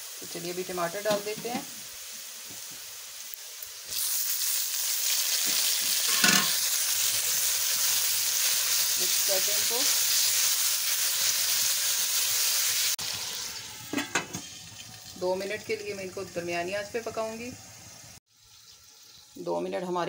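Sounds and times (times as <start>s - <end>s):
food sizzling in hot oil: 0.0s - 20.0s
spatula clatter: 5.4s - 6.7s.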